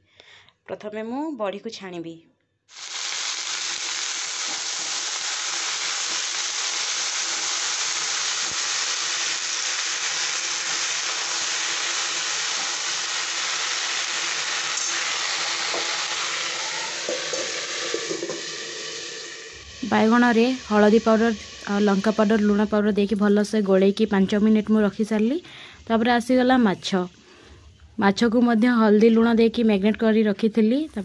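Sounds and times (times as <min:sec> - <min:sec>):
potatoes sizzling in hot oil: 0:02.7 - 0:24.1.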